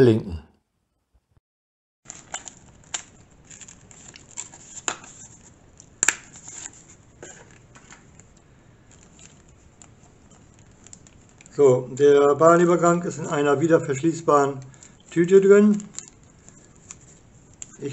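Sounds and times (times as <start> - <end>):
paper and plastic bag crinkling: 2.1 - 17.9
small ticks and clicks: 7.8 - 11.6.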